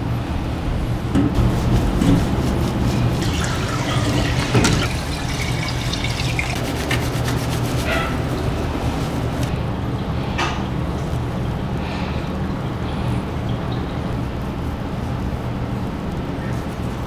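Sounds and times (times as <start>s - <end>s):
water splashing and dripping: 1.4s - 9.3s
hands rubbing lather into fur: 1.4s - 9.6s.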